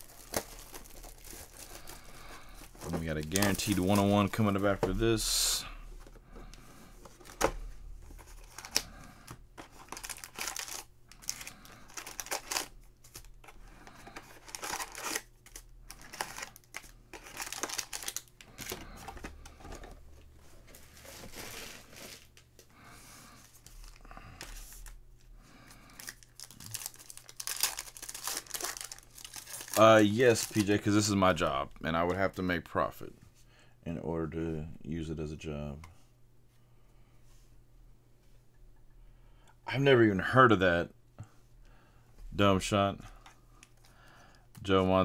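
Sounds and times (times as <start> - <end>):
foil wrappers crinkling and tearing: 0.0 - 4.6, 8.2 - 19.4, 25.8 - 31.0.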